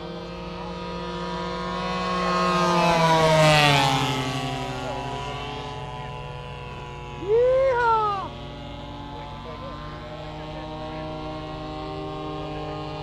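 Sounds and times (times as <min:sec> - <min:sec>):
model airplane engine passing: 0:00.0 - 0:13.0.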